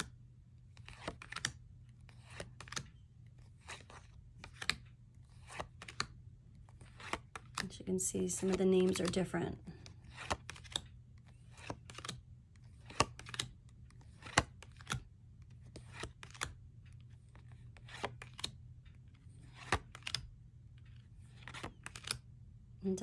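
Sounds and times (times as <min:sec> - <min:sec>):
cards clicking onto a pile: 0:00.8 - 0:01.6, 0:02.2 - 0:02.9, 0:03.6 - 0:06.1, 0:06.8 - 0:07.6, 0:10.1 - 0:10.9, 0:11.5 - 0:12.2, 0:12.8 - 0:15.0, 0:15.7 - 0:16.6, 0:17.8 - 0:18.6, 0:19.5 - 0:20.3, 0:21.4 - 0:22.2.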